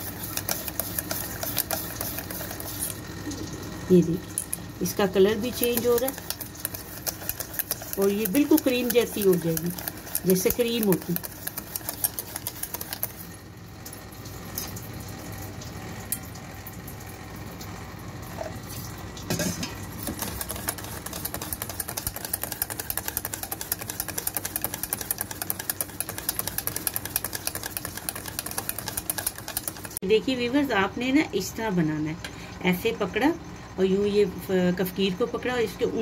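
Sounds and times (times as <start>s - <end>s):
whisk clicking against metal bowl: 0.0s - 3.0s, 5.3s - 13.2s, 20.0s - 30.0s.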